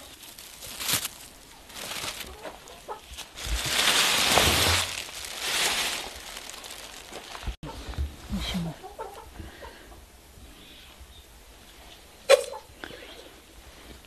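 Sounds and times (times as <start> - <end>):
plastic bags rustling: 0.0 - 7.7.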